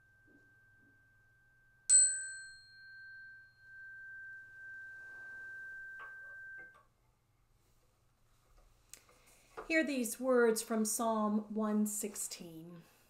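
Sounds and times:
meditation chime ringing: 0.0 - 6.9.

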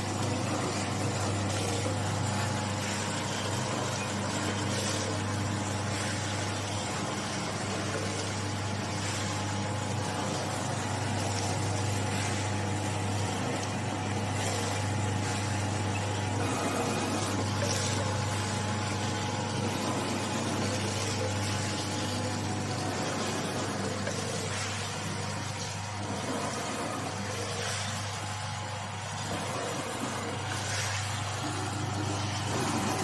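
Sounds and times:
packing machine humming: 0.0 - 33.0.

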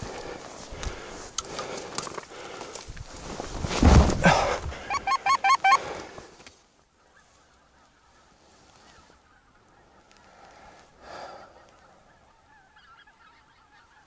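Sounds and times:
rustling close to microphone: 0.0 - 4.8.

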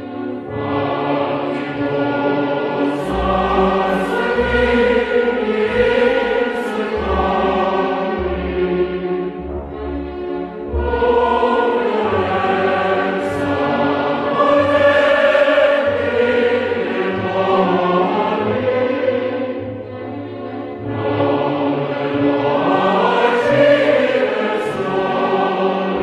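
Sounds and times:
chant-like choral voices: 0.0 - 26.0.

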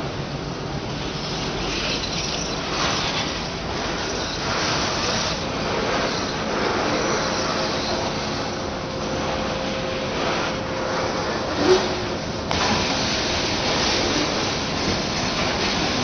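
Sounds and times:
wheel squeal: 1.2 - 8.6.

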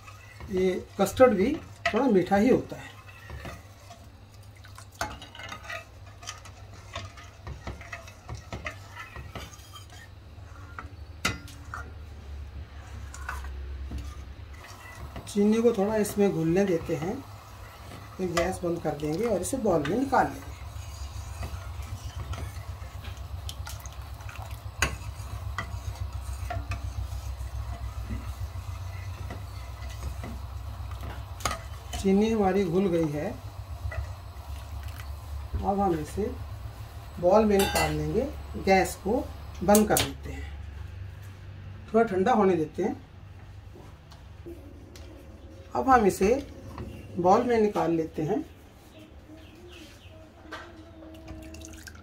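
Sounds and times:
metal ladle scraping a pan: 0.0 - 40.1
steady low hum: 0.0 - 41.9.

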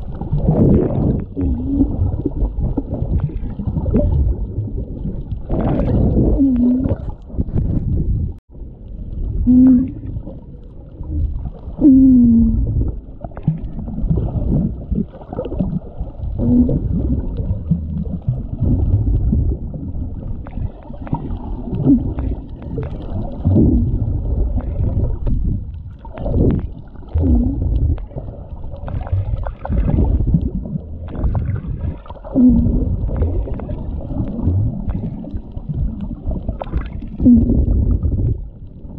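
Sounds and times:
rumble of moving water underwater: 0.0 - 38.9
low pitch-bending sounds: 3.8 - 10.3.

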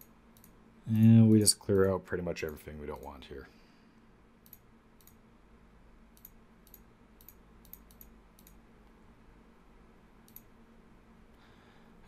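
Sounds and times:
computer mouse clicking: 0.0 - 0.6, 4.4 - 5.2, 6.1 - 8.6, 10.2 - 10.6
faint low hum: 0.0 - 12.0.

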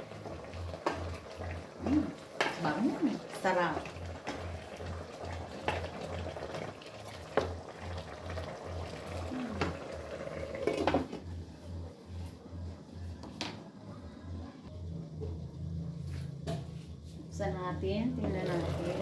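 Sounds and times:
pork simmering in sauce: 0.0 - 11.2.

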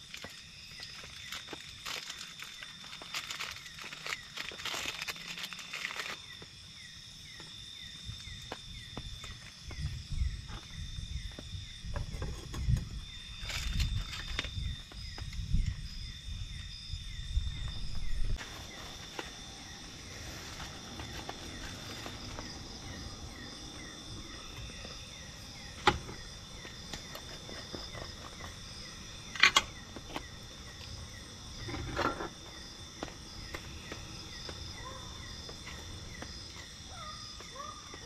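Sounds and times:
night insects chirping: 0.0 - 38.0
plastic sachet crinkling and tearing: 1.0 - 6.2.

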